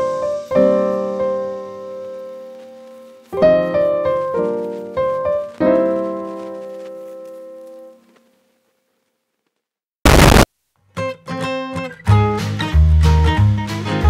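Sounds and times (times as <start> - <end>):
solo piano chords: 0.0 - 8.0.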